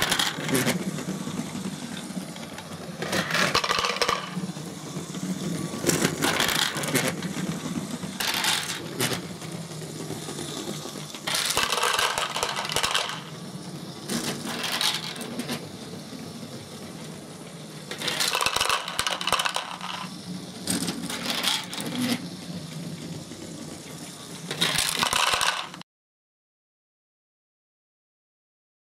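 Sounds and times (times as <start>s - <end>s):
plastic balls clattering: 0.0s - 0.9s, 2.6s - 4.6s, 5.8s - 7.3s, 8.2s - 9.3s, 11.2s - 13.3s, 14.1s - 15.6s, 17.9s - 22.2s, 24.5s - 25.8s.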